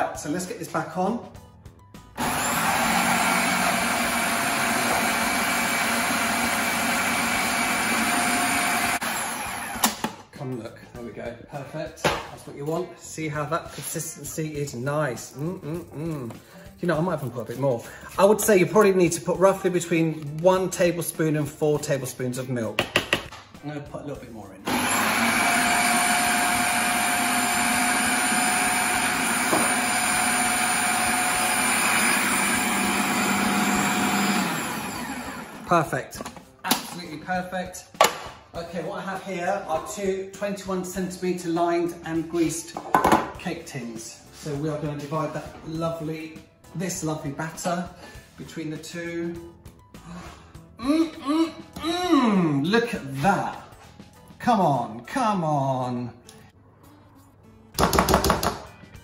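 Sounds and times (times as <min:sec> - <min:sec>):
food processor motor running: 0:02.2 - 0:10.2, 0:24.7 - 0:35.8.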